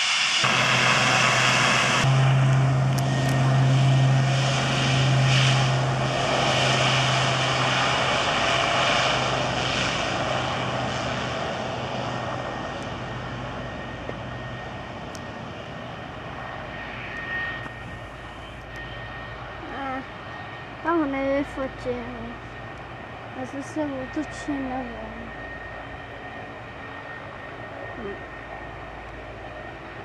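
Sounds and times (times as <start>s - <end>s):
turboprop engines droning: 0.0s - 30.0s.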